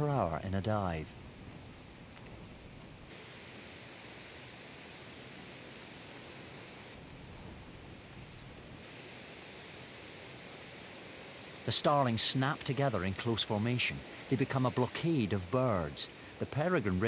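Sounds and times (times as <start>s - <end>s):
flock of starlings rushing hiss: 2.8s - 17.0s.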